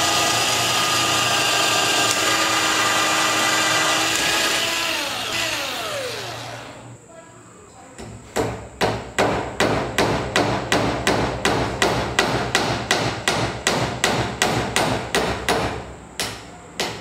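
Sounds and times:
hammer driving nail: 0.8 - 5.6.

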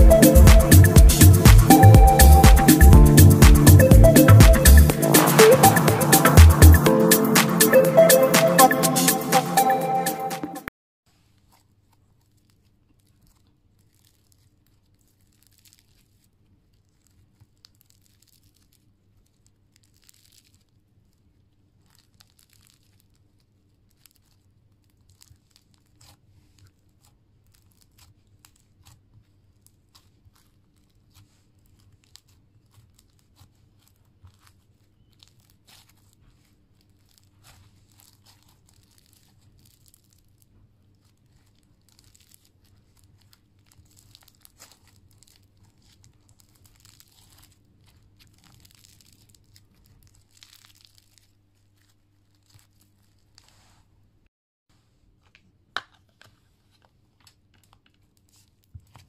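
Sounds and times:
crunchy slime crackling and popping: 12.3 - 29.0, 29.8 - 53.6.

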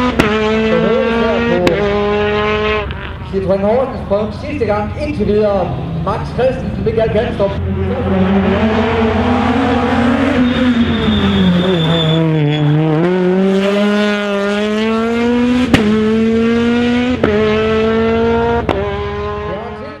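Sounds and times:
rally car engine accelerating: 0.0 - 20.0
brief high squeal: 10.2 - 12.8.

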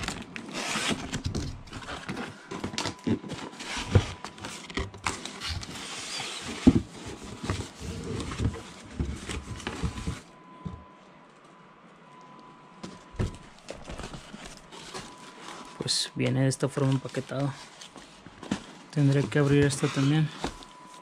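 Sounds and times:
cardboard box scraping and knocking: 5.6 - 10.3, 18.0 - 20.7.

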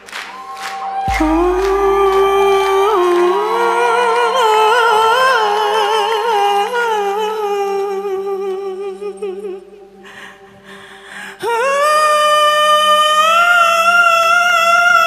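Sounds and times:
deep boom: 1.1 - 4.7
woman singing a held note: 1.1 - 7.0
steady low drone: 1.1 - 7.1.

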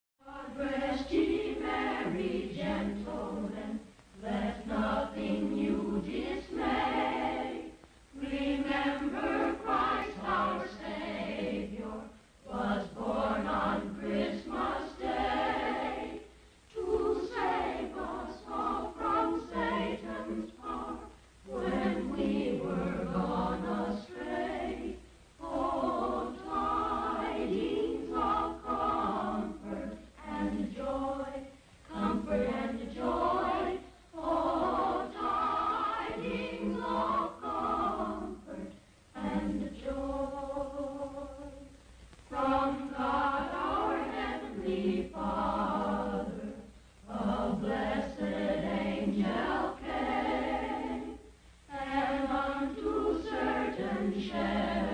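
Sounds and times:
choir singing: 0.2 - 41.7, 42.3 - 54.9.

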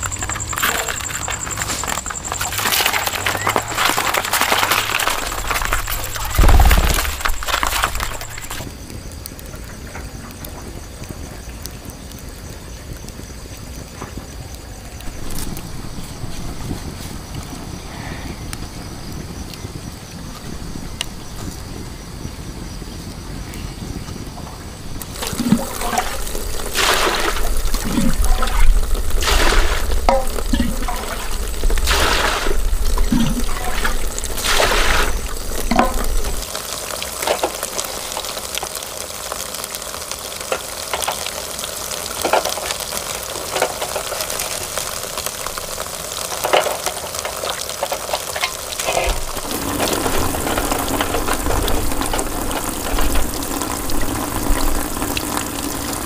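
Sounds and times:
water splashing and pouring: 0.0 - 8.7, 25.0 - 56.0
running water: 0.0 - 8.8, 24.9 - 56.0.

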